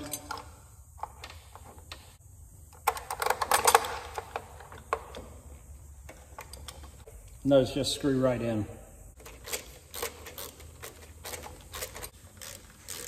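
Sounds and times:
metal parts clicking and clinking: 0.0s - 2.0s, 2.7s - 5.4s
rattling clicks: 0.0s - 5.4s.

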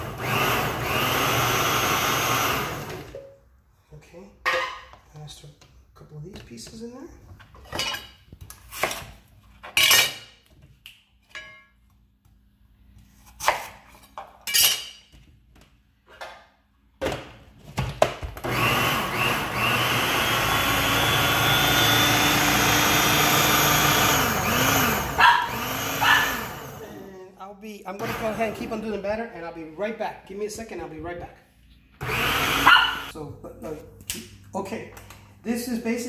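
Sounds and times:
food processor motor running: 0.0s - 3.1s, 18.4s - 27.0s, 28.0s - 28.6s, 32.0s - 33.1s.

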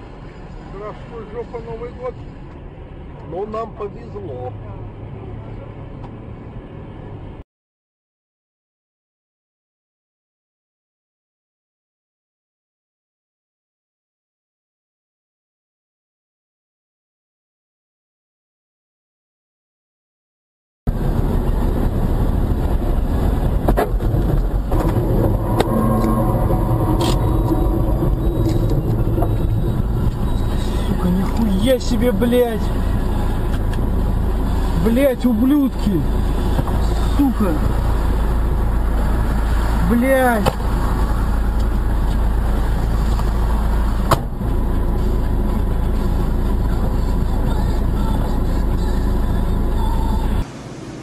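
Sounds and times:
car engine and road rumble: 0.0s - 7.4s, 20.9s - 51.0s.

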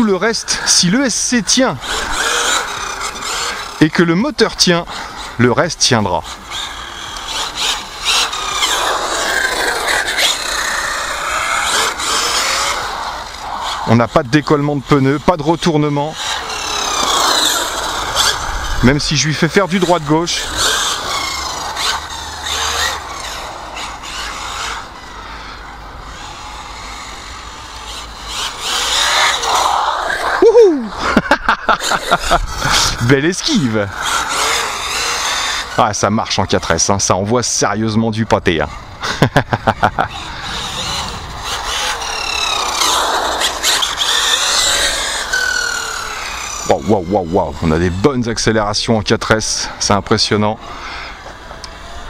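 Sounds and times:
rc car motor whine: 0.0s - 37.6s, 38.2s - 52.0s
rushing noise: 40.1s - 44.2s.

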